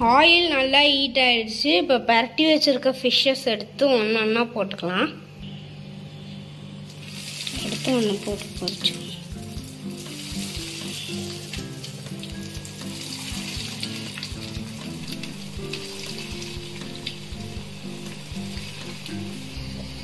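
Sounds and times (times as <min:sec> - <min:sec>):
music: 0:03.1 - 0:20.0
food sizzling in hot oil: 0:06.8 - 0:20.0.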